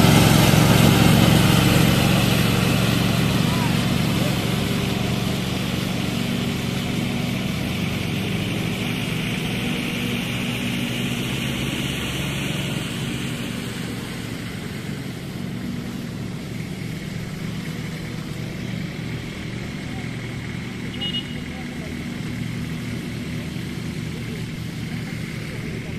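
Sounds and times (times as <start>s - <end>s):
riding lawn mower engine: 0.0s - 25.9s.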